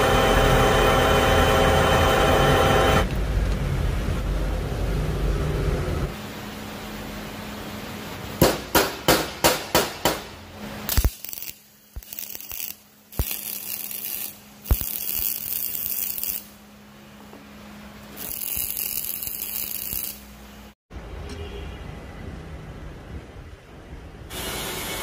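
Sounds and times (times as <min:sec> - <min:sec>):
welding arc hissing: 0:10.7 - 0:16.6, 0:18.1 - 0:20.8.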